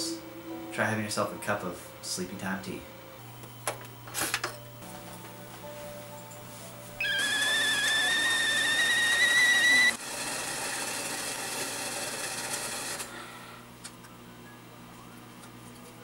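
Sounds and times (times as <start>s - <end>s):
kettle whistling: 7.0s - 10.0s.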